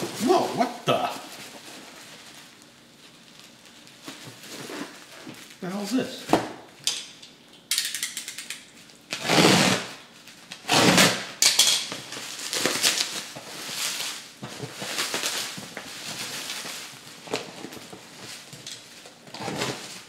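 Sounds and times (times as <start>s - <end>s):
plastic packaging crinkling: 0.0s - 5.9s, 10.0s - 10.6s, 11.9s - 20.0s
plastic tearing rustles: 0.0s - 6.4s, 8.6s - 20.0s
box cutter cutting plastic: 9.1s - 9.9s, 10.6s - 11.3s.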